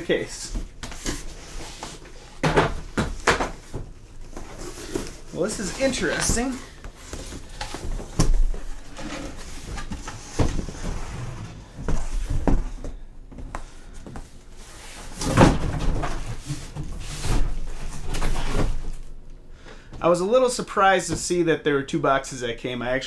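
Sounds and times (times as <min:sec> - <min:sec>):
cardboard rustling and scraping: 0:00.2 - 0:12.8, 0:14.6 - 0:19.1.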